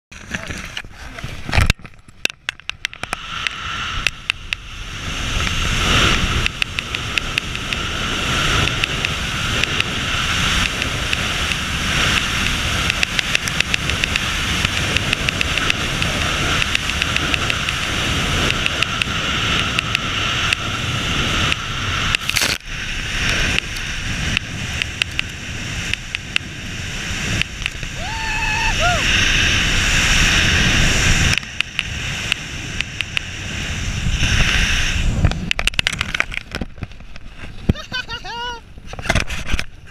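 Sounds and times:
wind rushing over microphone: 0:00.1 - 0:39.9.

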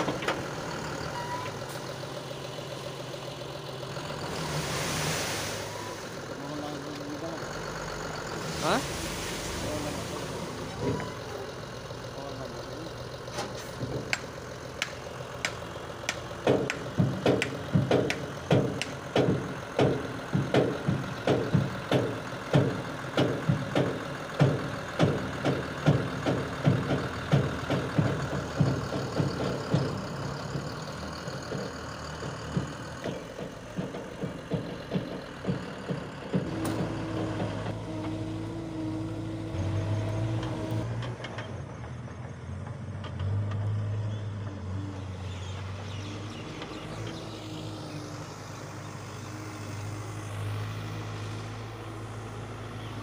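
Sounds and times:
diesel truck engine running: 0:00.0 - 0:53.0
loud regular knocking: 0:14.8 - 0:30.8, 0:31.4 - 0:37.6.

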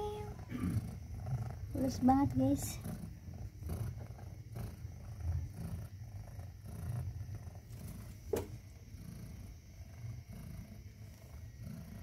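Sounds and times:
cat purring: 0:00.0 - 0:12.0.

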